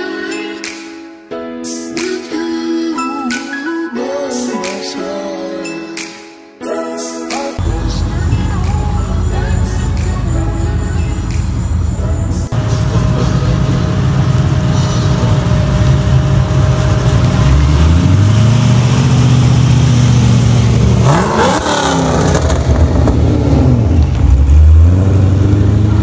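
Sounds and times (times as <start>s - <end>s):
car engine revving: 7.6s - 26.0s.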